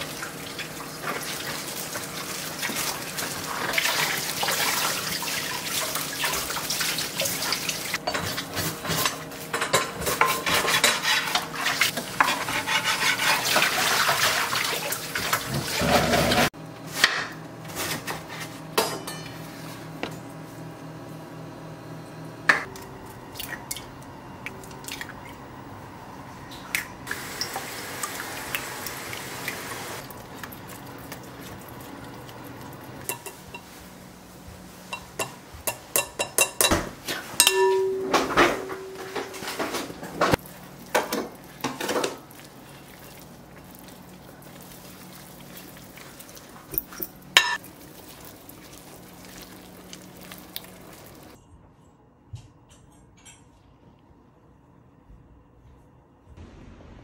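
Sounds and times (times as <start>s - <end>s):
dishes and utensils clinking: 8.0s - 13.8s, 18.8s - 19.4s, 33.0s - 33.8s, 34.9s - 42.2s, 46.8s - 47.7s.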